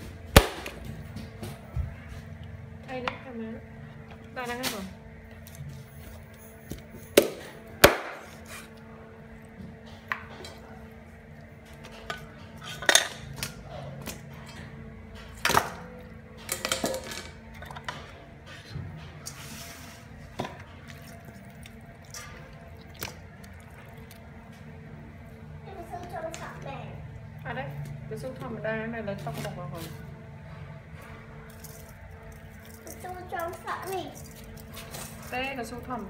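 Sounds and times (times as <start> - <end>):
cleaver chopping on wooden board: 7.2 - 8.3.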